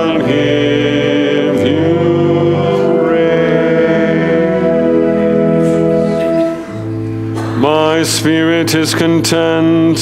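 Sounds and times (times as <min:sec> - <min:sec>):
voices singing a psalm: 0:00.0 - 0:06.4.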